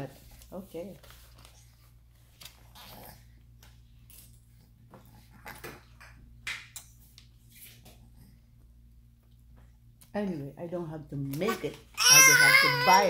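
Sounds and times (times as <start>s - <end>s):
faint low hum: 0.0s - 13.0s.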